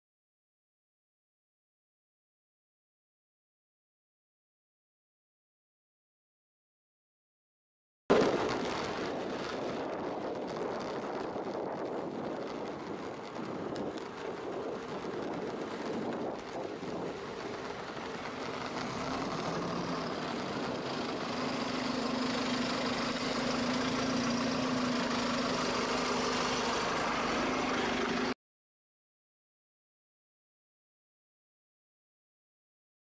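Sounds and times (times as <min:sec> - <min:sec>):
street traffic: 0:08.1 - 0:28.4
bus diesel engine idling: 0:16.8 - 0:28.3.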